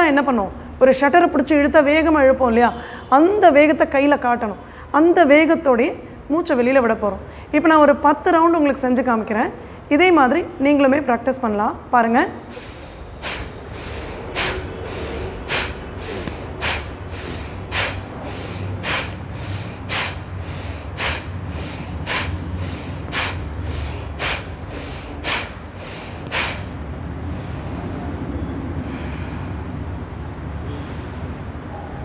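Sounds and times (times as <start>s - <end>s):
quick intake of breath: 2.8s - 3.1s, 12.4s - 28.2s, 28.8s - 29.8s, 30.6s - 31.7s
steady low hum: 11.0s - 32.0s
woman forcefully exhaling: 12.5s - 28.0s, 28.8s - 29.8s, 30.7s - 31.6s.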